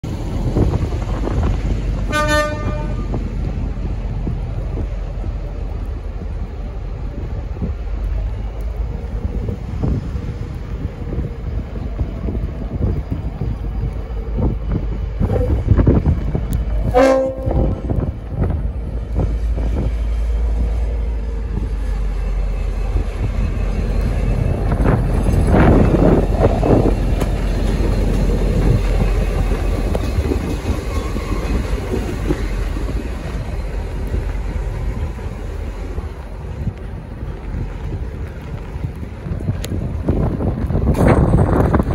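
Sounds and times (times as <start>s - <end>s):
diesel locomotive rumble: 0.0s - 41.9s
locomotive horn blast: 2.1s - 3.2s, 16.8s - 17.8s.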